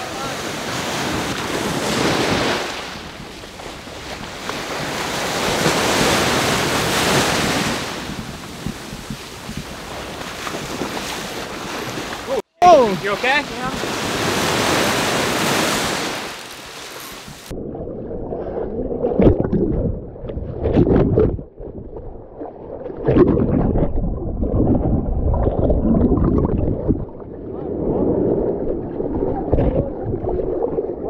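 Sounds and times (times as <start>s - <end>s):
wind on microphone: 0.0s - 12.3s, 13.5s - 31.0s
surf breaking: 0.0s - 17.5s
muffled underwater churning: 0.0s - 31.0s.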